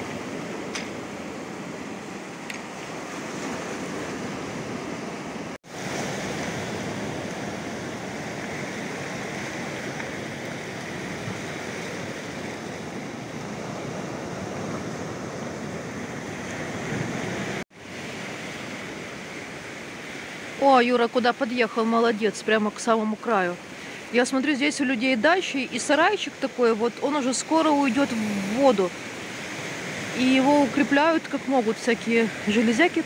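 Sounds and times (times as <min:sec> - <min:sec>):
surf breaking on rocky shore: 0:00.0 - 0:20.7.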